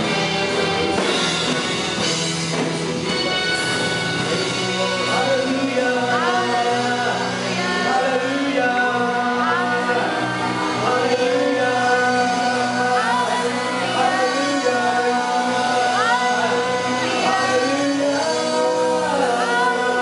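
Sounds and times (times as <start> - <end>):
drum kit: 0.0 - 20.0
electric guitar: 0.0 - 20.0
keyboard: 0.0 - 20.0
voices singing: 4.7 - 20.0.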